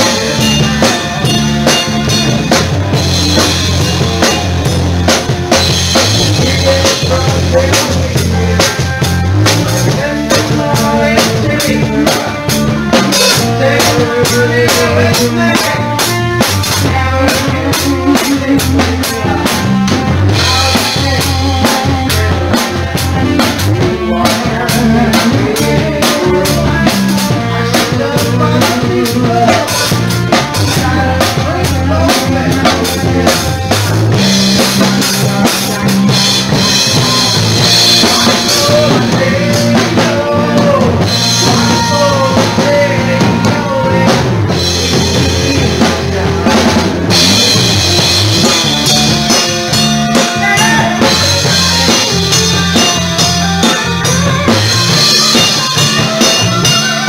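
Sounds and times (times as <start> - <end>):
drum kit: 0.0 - 57.0
electric bass guitar: 0.0 - 57.0
woman singing: 50.2 - 57.0.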